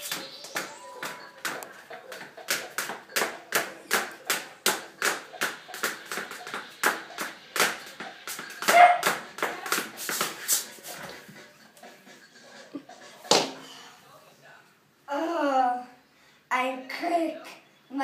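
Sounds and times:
rhythmic clapping: 0.0 - 13.6.

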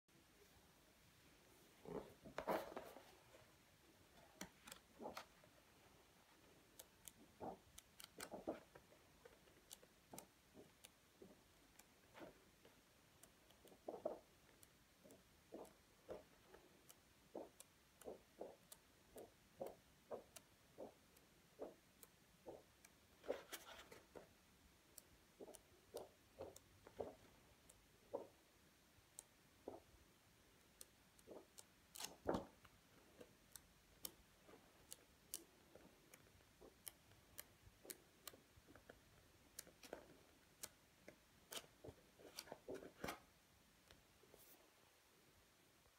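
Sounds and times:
book pages turning: 1.9 - 3.3, 4.4 - 5.4, 6.8 - 10.2, 23.2 - 24.3, 31.2 - 32.7, 41.1 - 43.3.

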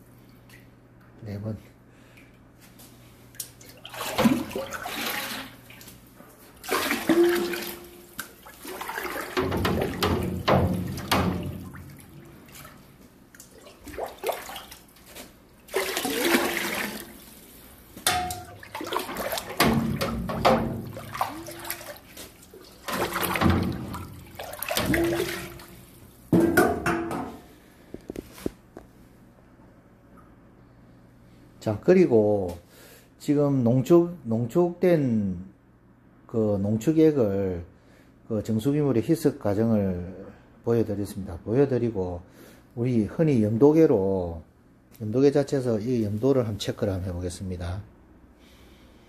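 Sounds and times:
liquid glugging: 3.4 - 6.0, 6.6 - 17.4, 18.1 - 26.0
broth splashing into water: 3.6 - 6.0, 6.6 - 17.4, 18.1 - 26.0.

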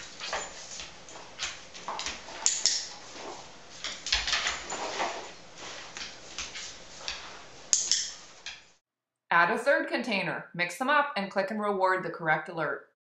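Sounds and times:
egg cartons scraping on floor: 0.0 - 8.4.

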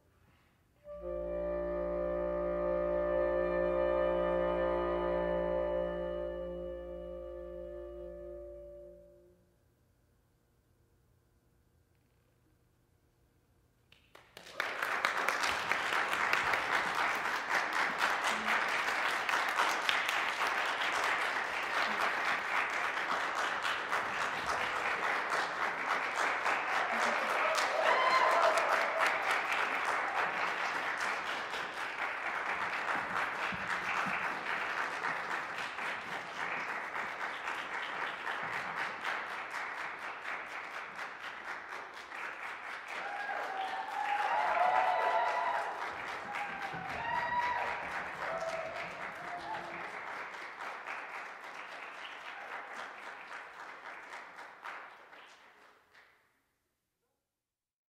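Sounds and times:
audience applauding: 14.0 - 56.1
audience cheering: 26.3 - 32.3, 42.8 - 50.2.

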